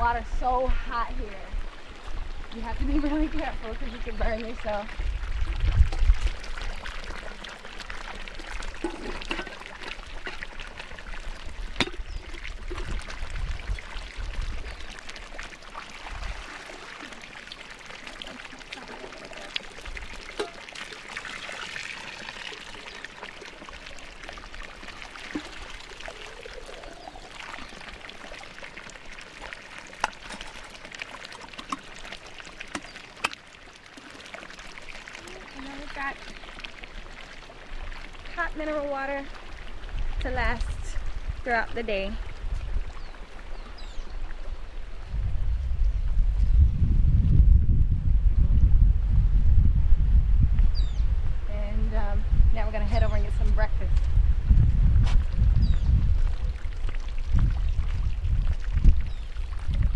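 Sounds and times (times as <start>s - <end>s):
low rumbles on microphone: 0.0s - 6.9s, 39.7s - 59.9s
water pouring from pipe: 1.9s - 44.5s, 52.6s - 59.9s
water filling metal kettle: 5.9s - 14.7s, 18.1s - 33.4s.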